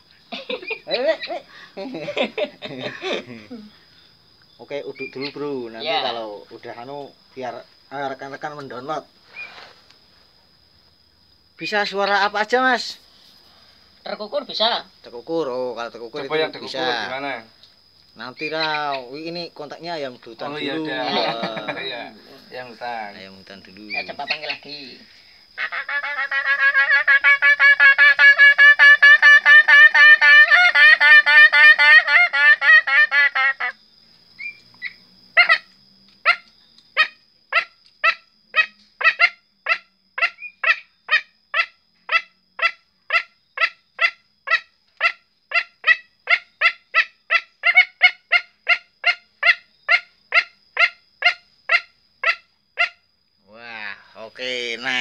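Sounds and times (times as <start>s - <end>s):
man clucking: 0.3s - 3.7s, 20.8s - 22.0s.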